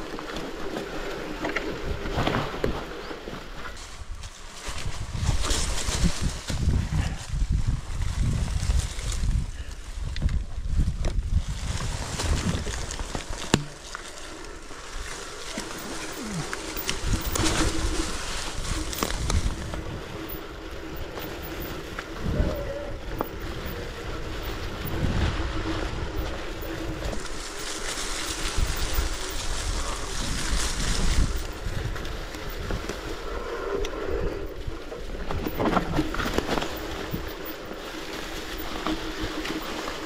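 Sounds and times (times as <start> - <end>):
bike tyres rumbling on dirt: 0.0 - 40.0
wind buffeting microphone: 3.7 - 13.7, 15.7 - 40.0
bike knocks and rattles: 10.2 - 14.2, 15.4 - 33.0, 35.2 - 40.0.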